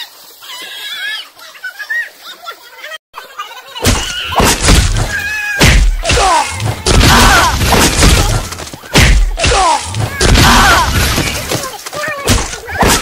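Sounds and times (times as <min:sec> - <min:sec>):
people shouting: 0:04.0 - 0:13.0.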